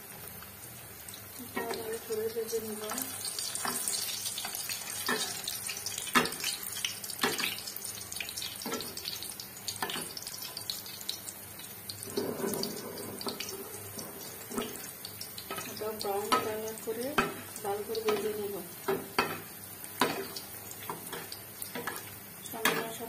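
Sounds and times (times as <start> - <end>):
food sizzling in hot oil: 0.0 - 23.0
spatula knocking against pan: 18.0 - 20.3.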